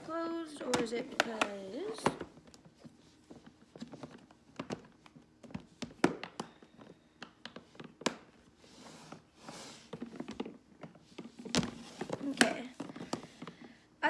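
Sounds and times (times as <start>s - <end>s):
plastic case clicks and knocks: 3.9s - 8.3s.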